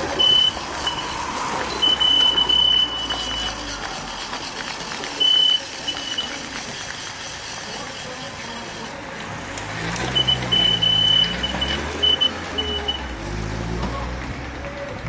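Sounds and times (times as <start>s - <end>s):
high-pitched beeping: 0.0s - 3.8s, 5.1s - 6.4s, 10.1s - 13.2s
car engine: 0.0s - 15.0s.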